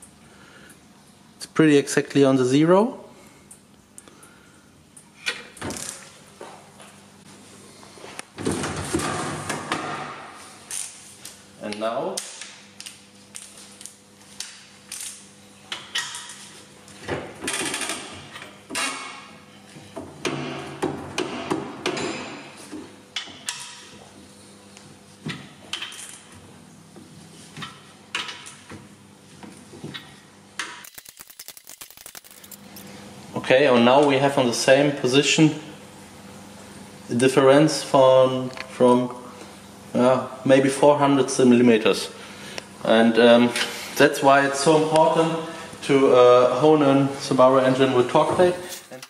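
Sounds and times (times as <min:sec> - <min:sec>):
faint machine hum: 0:00.0 - 0:49.0
metal parts sliding and rattling: 0:30.9 - 0:32.8.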